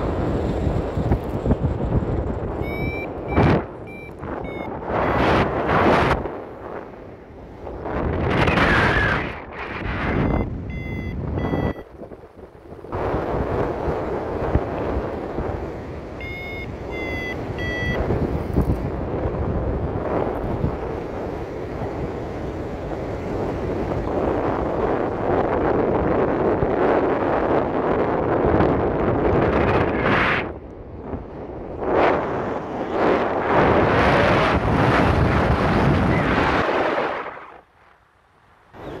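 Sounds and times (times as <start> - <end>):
wind buffeting microphone: 0.0 - 37.6
variometer short beeps: 2.6 - 5.5, 10.0 - 11.9, 16.2 - 18.4.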